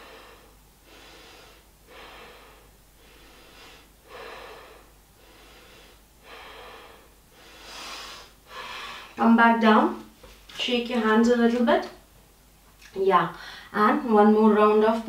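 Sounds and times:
woman breathing in hissing breaths: 0.0s - 9.2s, 13.4s - 13.8s.

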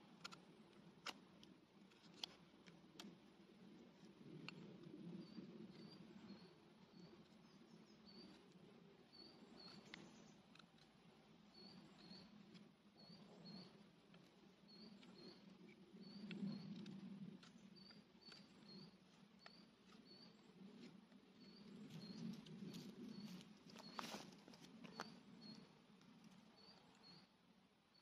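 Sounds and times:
rustle: 0.0s - 28.0s
bird chirping: 9.1s - 10.6s, 11.5s - 13.8s, 14.6s - 20.6s, 21.3s - 25.7s, 26.5s - 27.3s.

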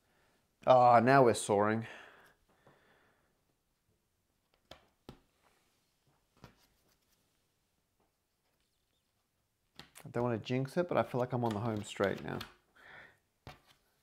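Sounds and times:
jigsaw pieces clicking on table: 11.1s - 12.6s.

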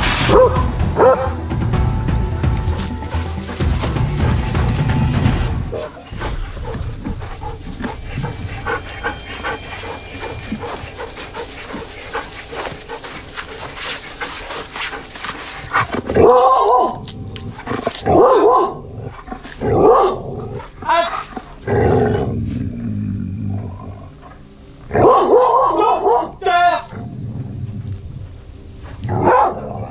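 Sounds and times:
dog barking and growling: 0.0s - 29.9s
rustling: 2.1s - 24.9s, 27.0s - 29.9s.

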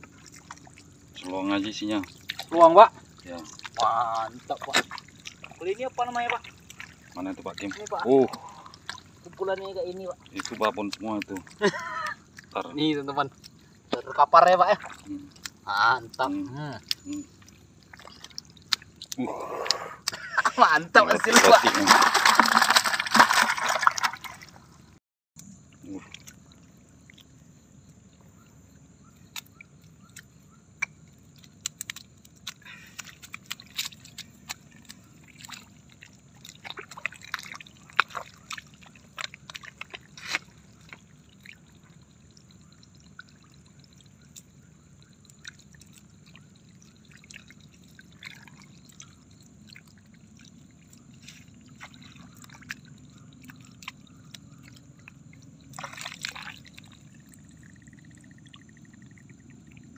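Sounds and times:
water dripping: 0.0s - 59.9s
hands splashing in shallow water: 21.1s - 24.7s, 31.4s - 42.0s, 50.9s - 57.5s.

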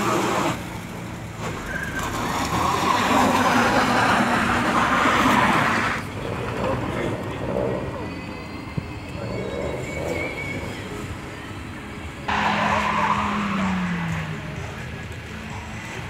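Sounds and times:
car sliding on snow: 1.4s - 7.7s
car engine under throttle: 12.2s - 16.0s.

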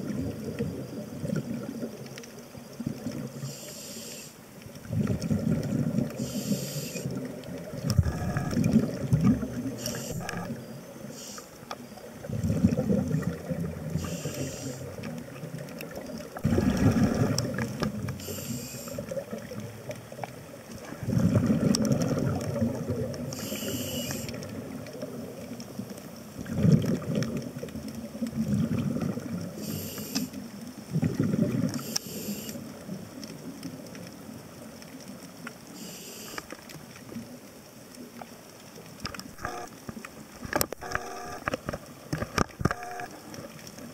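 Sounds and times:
regulator inhale hiss: 3.4s - 4.5s, 6.2s - 7.2s, 9.7s - 11.8s, 13.9s - 15.0s, 18.1s - 19.1s, 23.3s - 24.4s, 29.6s - 30.4s, 31.7s - 32.7s, 35.7s - 36.6s
regulator exhale bubbling: 16.4s - 19.6s.

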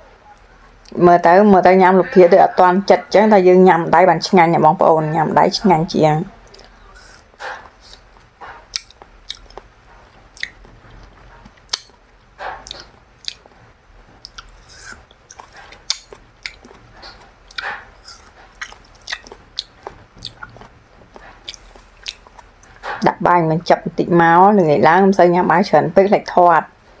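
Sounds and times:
person chewing food: 6.4s - 23.0s.

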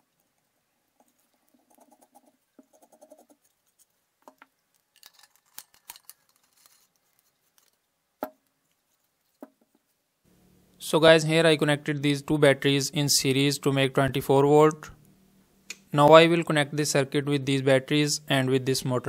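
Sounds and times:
belt and plywood parts scraping: 5.0s - 7.8s.

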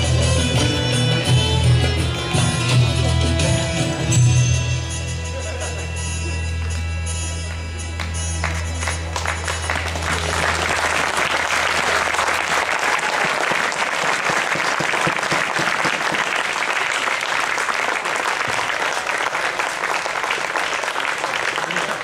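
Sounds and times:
audience applauding: 7.4s - 22.0s.

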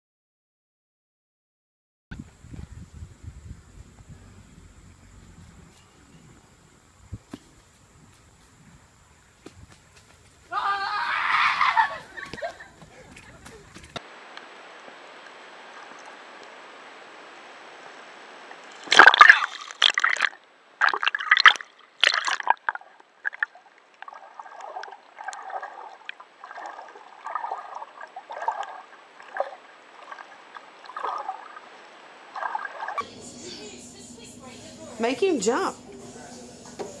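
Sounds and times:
water splashing and sloshing: 18.4s - 33.0s.

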